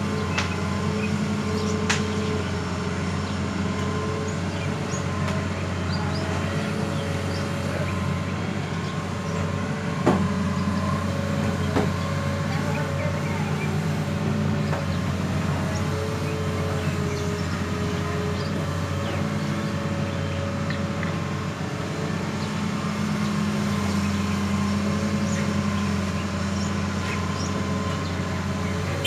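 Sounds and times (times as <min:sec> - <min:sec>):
excavator diesel engine running: 0:00.0 - 0:29.0.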